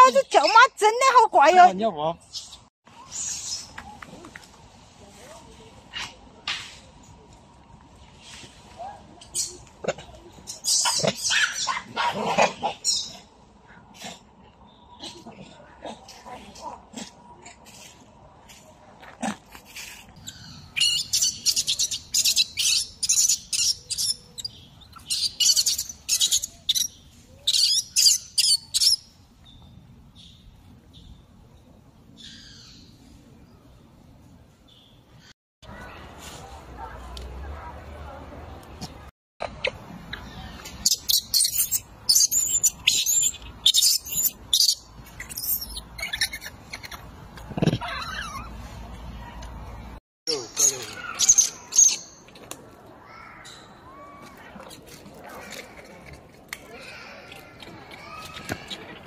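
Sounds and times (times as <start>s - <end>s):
baby monkey screaming: 40.8s - 47.0s, 47.6s - 48.5s
newborn macaque screaming: 47.8s - 48.5s.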